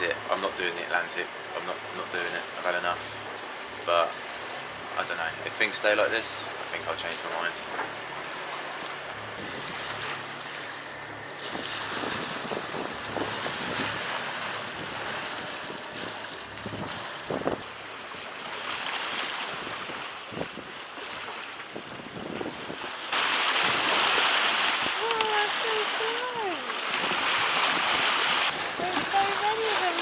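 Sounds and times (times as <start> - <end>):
sea waves against a boat: 0.0 - 30.0
wind buffeting microphone: 9.2 - 17.8, 19.5 - 20.8, 21.7 - 23.0, 23.6 - 30.0.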